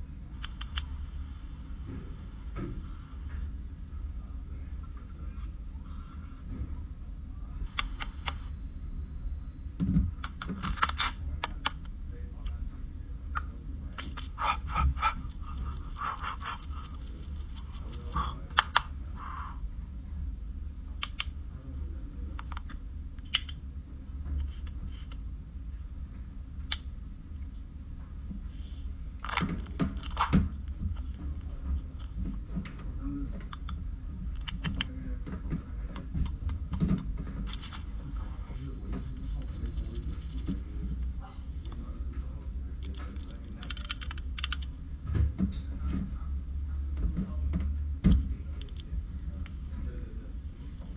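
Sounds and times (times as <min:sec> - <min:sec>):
steady low hum: 0:00.0 - 0:50.9
brush rubbing on skin: 0:39.3 - 0:40.6.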